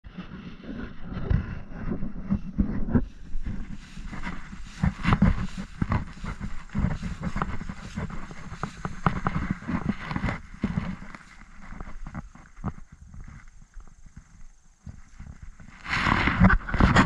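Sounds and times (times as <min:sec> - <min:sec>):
wind rumbling on microphone: 0:00.0 - 0:17.0
footsteps through dry leaves: 0:03.0 - 0:13.5.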